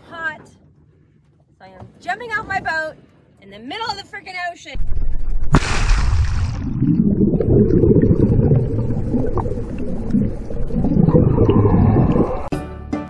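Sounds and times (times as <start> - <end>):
underwater rumble and gurgle: 4.8 - 12.5
music: 12.5 - 13.0.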